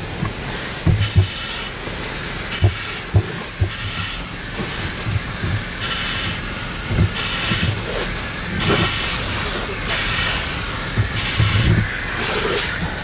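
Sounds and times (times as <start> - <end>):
fire hose spraying water: 0.0 - 13.0
dull knocks: 0.2 - 1.4, 2.6 - 7.9, 10.9 - 11.9.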